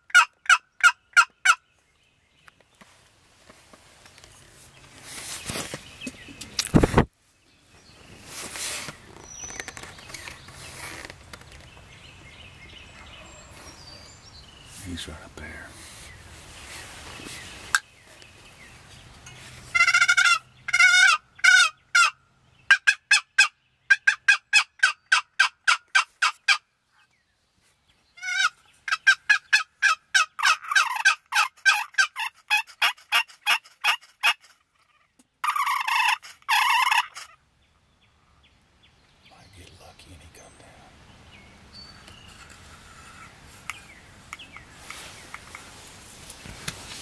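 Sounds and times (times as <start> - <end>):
turkey call yelps: 0.1 - 1.6, 19.7 - 26.6, 28.2 - 37.4.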